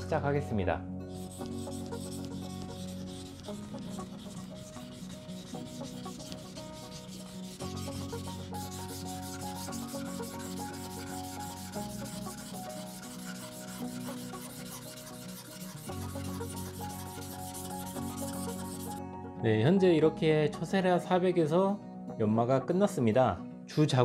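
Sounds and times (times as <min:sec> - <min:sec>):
knife grinding on whetstone: 0:01.1 - 0:19.0.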